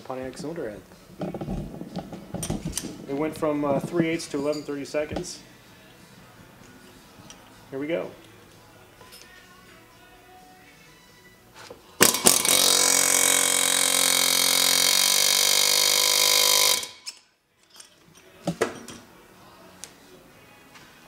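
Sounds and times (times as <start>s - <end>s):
pneumatic air hammer rattling: 12.0s - 17.1s.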